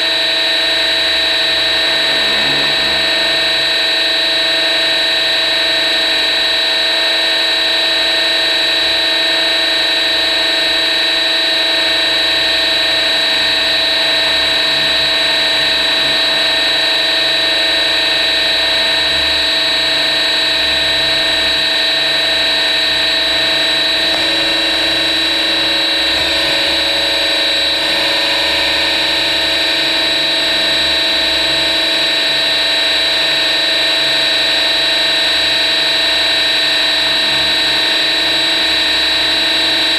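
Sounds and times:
rc helicopter motor whine: 0.0 - 39.9.

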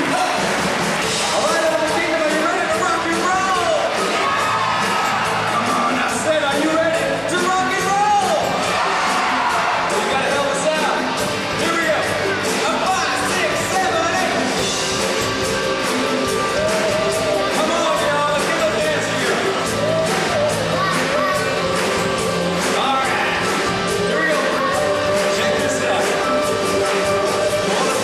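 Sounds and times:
steady drum beat: 0.0 - 28.0
person singing: 14.0 - 28.0.

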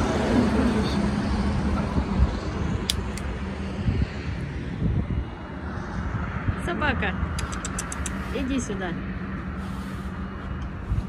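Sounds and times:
road vehicle engine hum: 0.0 - 11.0
short clicks: 7.4 - 8.2.

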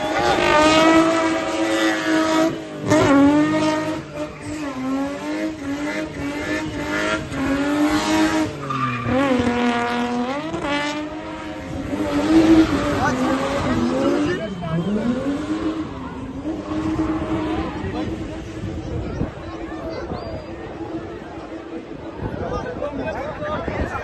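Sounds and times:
car engine revving high: 0.0 - 18.9.

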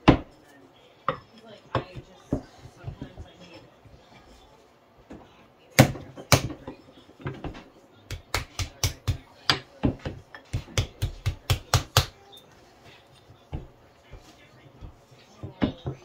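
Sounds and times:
wooden paddle slapping clay: 8.1 - 12.2.

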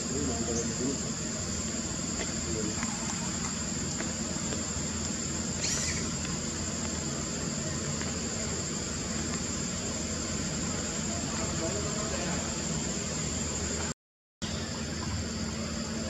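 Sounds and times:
high-pitched insect drone: 0.0 - 16.0
outdoor background hiss: 0.0 - 16.0.

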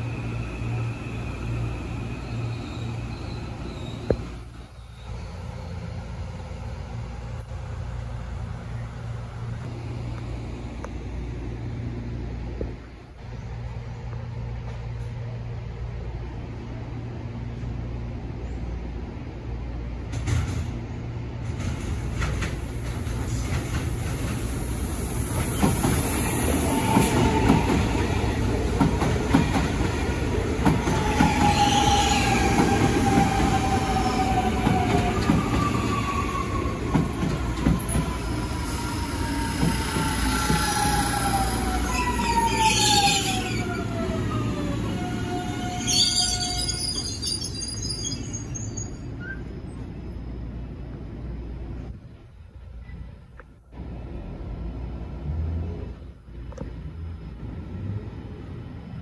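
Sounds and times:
electric train passing: 0.0 - 59.0
rail clatter: 20.0 - 20.8, 21.4 - 42.4
thin wheel squeal: 45.6 - 49.4.

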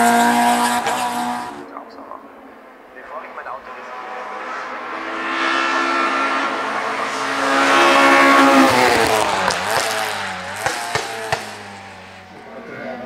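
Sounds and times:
race car engine passing: 0.0 - 13.0.

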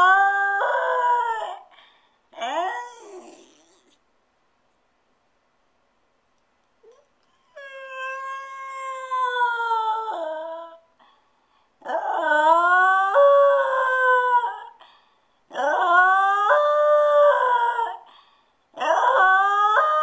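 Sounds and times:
dog howling: 0.0 - 1.7, 2.4 - 4.0, 6.9 - 10.8, 11.8 - 14.8, 15.5 - 18.0, 18.8 - 20.0.

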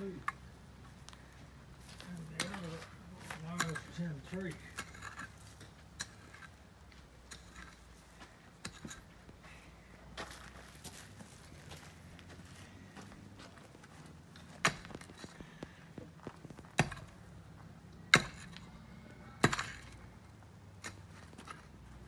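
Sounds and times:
mattock striking soil: 2.0 - 6.6, 14.4 - 17.2.

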